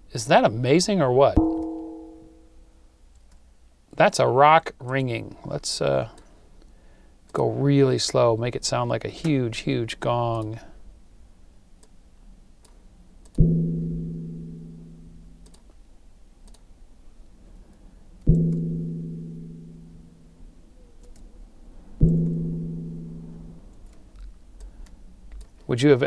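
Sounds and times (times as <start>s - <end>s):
low ringing tones: 1.4s - 2.7s, 13.4s - 15.4s, 18.3s - 20.6s, 22.0s - 23.7s
slowed deep rock strike: 13.4s - 15.4s, 18.3s - 20.3s, 22.0s - 23.6s.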